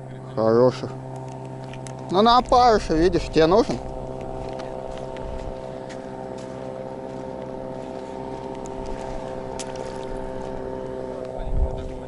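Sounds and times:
engine drone: 0.0s - 12.0s.

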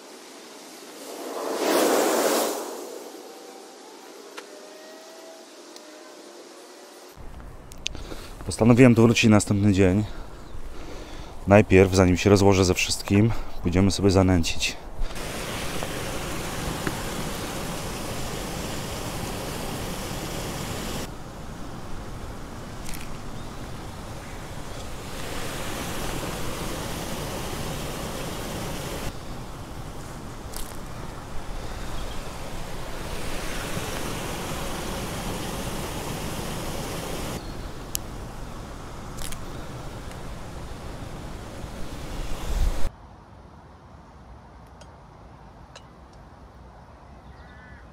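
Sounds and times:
water rushing from waterfall: 15.1s - 37.4s, 38.6s - 42.9s.

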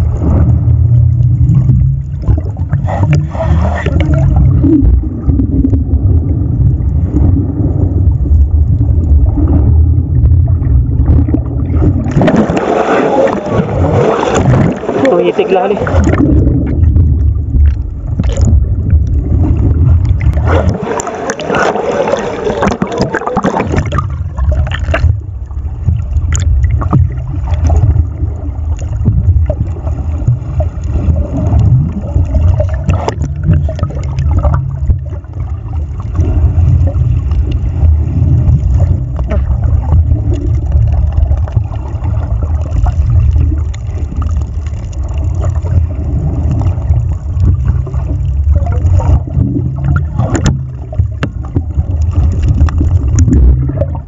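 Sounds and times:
gurgling water: 0.0s - 54.0s
underwater low rumble: 0.0s - 54.0s.

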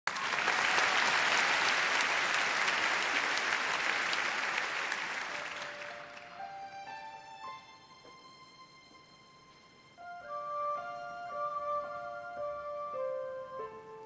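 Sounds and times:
audience applauding: 0.1s - 6.7s
orchestra held notes: 0.1s - 14.0s.

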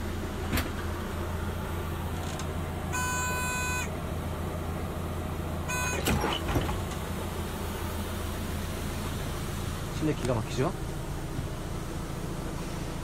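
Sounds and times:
engine idling low hum: 0.0s - 13.0s
electronic beeps: 5.7s - 6.1s.

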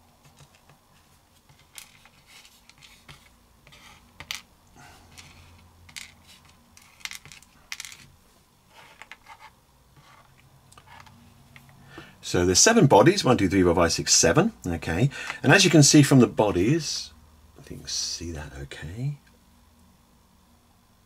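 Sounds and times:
plastic parts clicking on desk: 5.1s - 8.1s.

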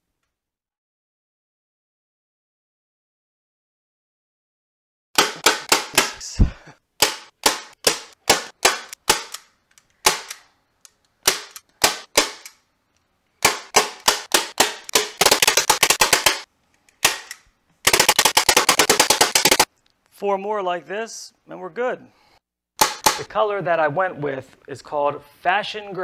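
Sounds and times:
staple gun snapping: 7.0s - 10.5s, 11.2s - 12.6s, 22.8s - 23.3s.

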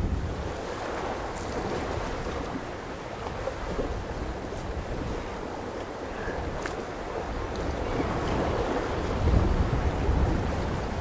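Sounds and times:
open water wash: 0.0s - 11.0s
wind on microphone: 0.0s - 11.0s.

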